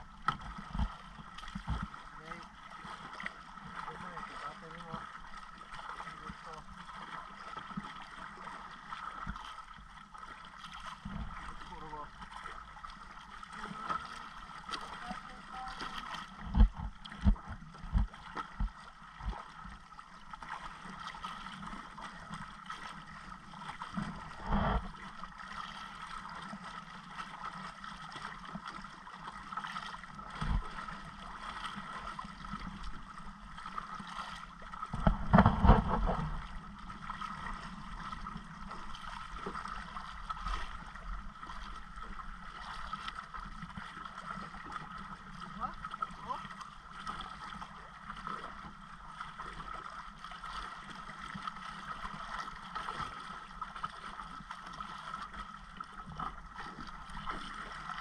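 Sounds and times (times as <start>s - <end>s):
sea water sloshing around boat: 0.0s - 58.0s
dull knocks against hull: 0.2s - 1.9s, 16.4s - 19.4s, 34.9s - 36.4s.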